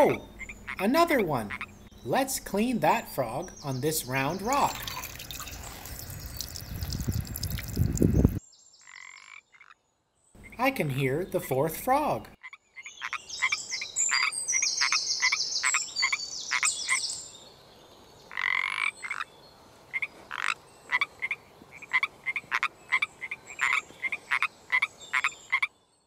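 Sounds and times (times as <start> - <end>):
frogs croaking: 0.0 - 2.1, 3.1 - 11.6, 12.2 - 17.3, 18.3 - 25.8
longer frog call: 0.1 - 1.8, 20.0 - 25.7.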